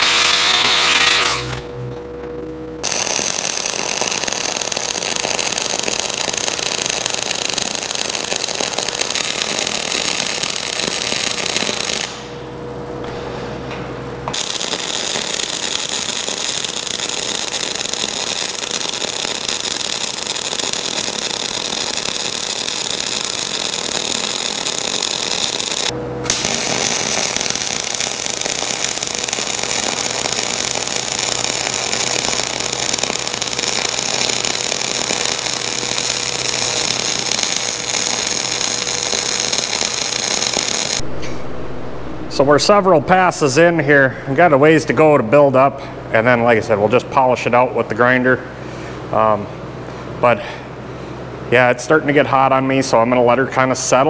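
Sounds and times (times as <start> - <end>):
welding arc crackling hiss: 0.0 - 1.6, 2.8 - 12.4, 14.3 - 41.0
welder low hum: 0.0 - 46.5.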